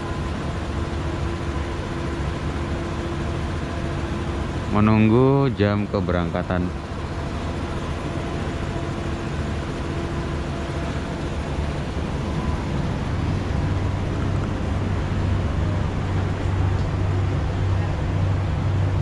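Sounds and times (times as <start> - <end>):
train engine hum: 0.0 - 19.0
train rail noise: 9.9 - 19.0.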